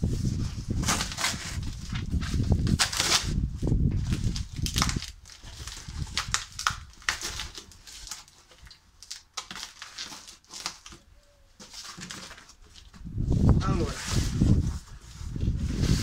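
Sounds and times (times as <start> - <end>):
cardboard box tearing: 0.6 - 3.4.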